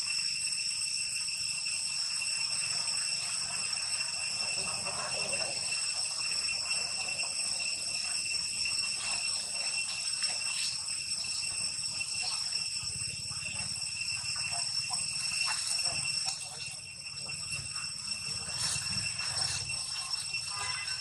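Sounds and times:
high-pitched insect drone: 0:00.0 - 0:21.0.

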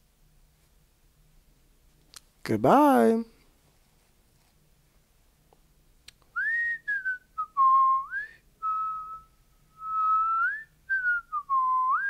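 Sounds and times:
person whistling a tune: 0:06.4 - 0:12.0.

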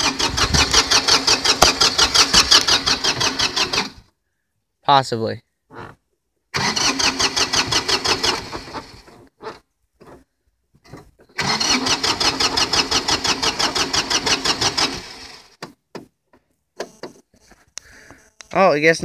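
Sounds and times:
diesel engine cranking: 0:00.0 - 0:04.1, 0:05.8 - 0:10.2, 0:11.1 - 0:15.7.

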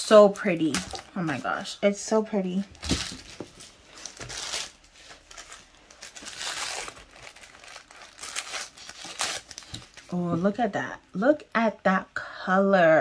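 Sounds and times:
plastic and tissue paper crinkling: 0:00.3 - 0:01.7, 0:02.6 - 0:10.2.

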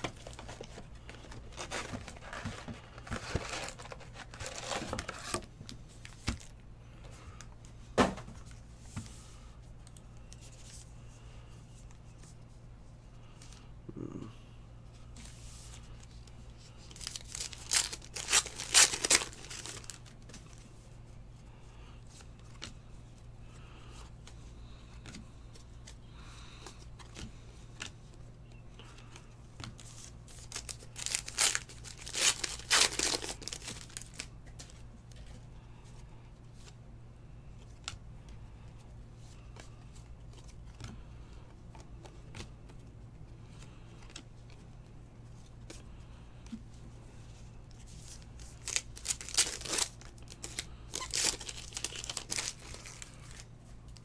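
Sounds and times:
foil wrappers tearing and crinkling: 0:00.1 - 0:05.5, 0:16.8 - 0:20.2, 0:30.3 - 0:34.3, 0:48.1 - 0:53.4.

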